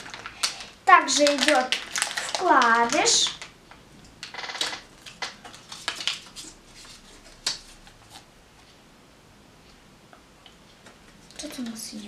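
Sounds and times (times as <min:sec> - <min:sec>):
paper crinkling and rustling: 0:00.0 - 0:03.5, 0:04.3 - 0:08.3.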